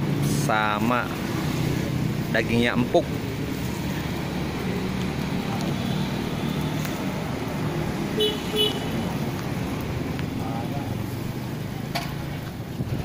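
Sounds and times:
engine humming nearby: 0:00.0 - 0:13.0
street traffic rumble: 0:00.0 - 0:13.0
short car horn beeps: 0:08.2 - 0:08.9.

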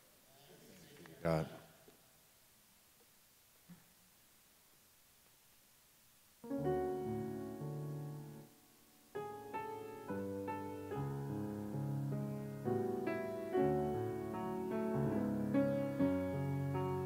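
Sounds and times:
piano chords: 0:06.4 - 0:17.0.

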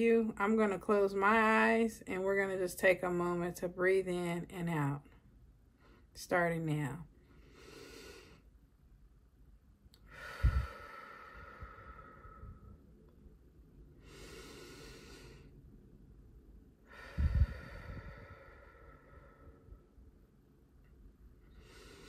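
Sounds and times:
person breathing deeply: 0:07.2 - 0:08.5, 0:10.0 - 0:12.9, 0:14.0 - 0:15.6, 0:16.8 - 0:19.9, 0:21.4 - 0:22.0.

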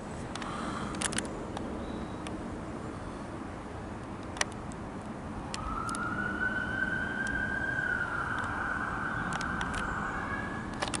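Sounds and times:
sharp clicks: 0:04.0 - 0:06.1, 0:09.2 - 0:09.9, 0:10.7 - 0:11.0
jet engines whining overhead: 0:05.2 - 0:11.0.

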